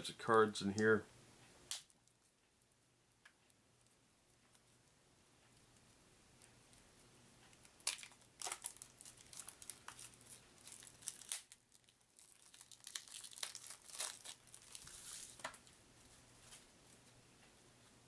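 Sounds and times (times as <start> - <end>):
plastic wrapping crinkling and tearing: 7.7 - 15.8.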